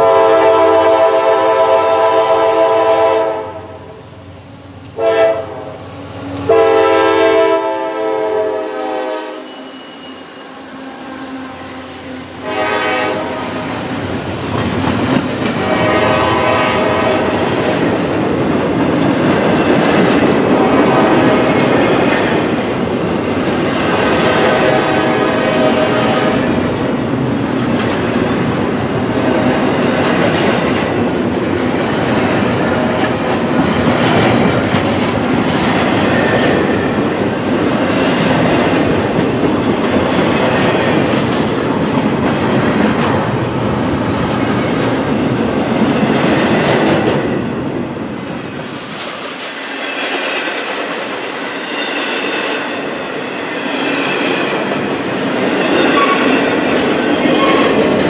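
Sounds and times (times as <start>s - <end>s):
freight train wheels clattering: 12.4s - 58.0s.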